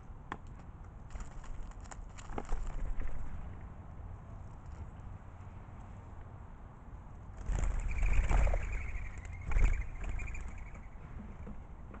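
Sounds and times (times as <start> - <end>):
doves wing flutter: 7.4 - 11.6.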